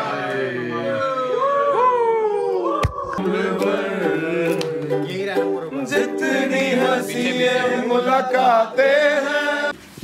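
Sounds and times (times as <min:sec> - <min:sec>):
men singing together: 0:03.2 - 0:05.0, 0:05.8 - 0:09.8
ukulele strumming: 0:03.2 - 0:08.1.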